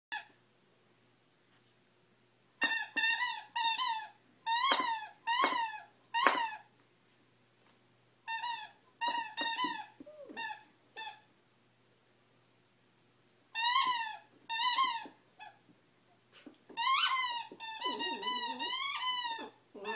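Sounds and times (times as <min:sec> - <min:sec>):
squeaky toy squeaking: 0:02.6 - 0:06.7, 0:08.3 - 0:11.3, 0:13.5 - 0:15.6, 0:16.8 - 0:19.9.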